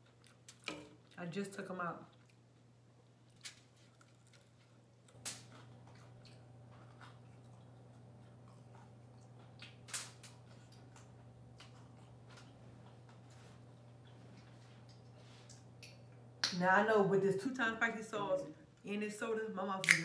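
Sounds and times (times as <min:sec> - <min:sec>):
low steady hum: 0:00.0 - 0:20.0
crunchy chewing: 0:03.0 - 0:16.2.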